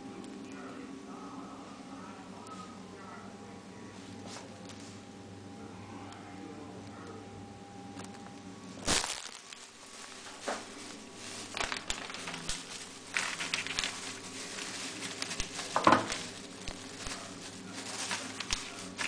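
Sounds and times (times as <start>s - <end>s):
food packaging crinkling: 8.8s - 19.0s.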